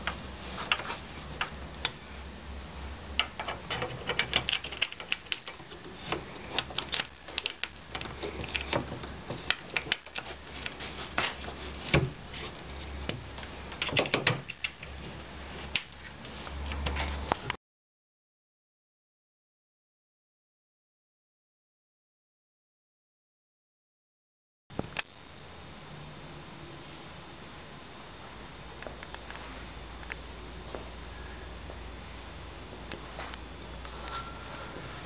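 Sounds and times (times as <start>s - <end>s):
low steady hum: 0.0s - 17.6s, 24.7s - 35.0s.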